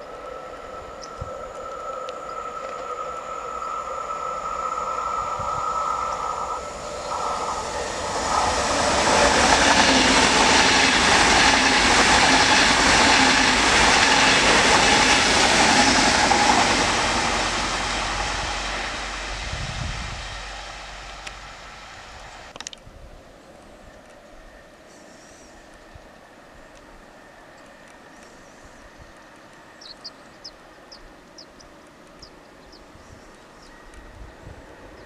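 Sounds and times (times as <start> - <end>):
steady high hum: 0.0 - 10.8
rush of wheels on rail: 0.0 - 22.6
high-speed train passing: 0.0 - 35.0.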